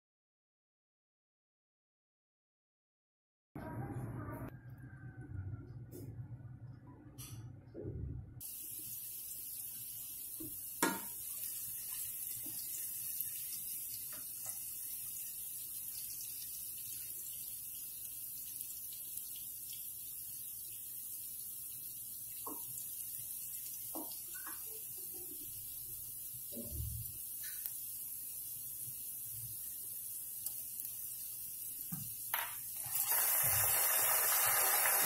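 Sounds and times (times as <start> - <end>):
onions sizzling in oil: 8.4 - 35.0.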